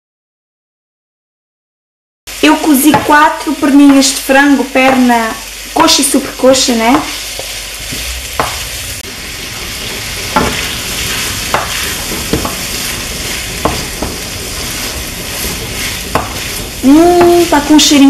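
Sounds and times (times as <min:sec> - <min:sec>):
food sizzling in frying pan: 0:02.3 - 0:18.0
wooden spoon knocking on pan: 0:02.8 - 0:03.2, 0:06.9 - 0:08.6, 0:10.3 - 0:10.8, 0:11.4 - 0:12.8, 0:13.6 - 0:14.3, 0:15.7 - 0:17.9.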